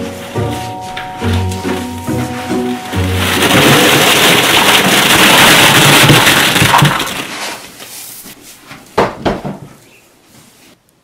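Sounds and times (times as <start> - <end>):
plastic balls clattering onto couch: 3.0 - 7.7.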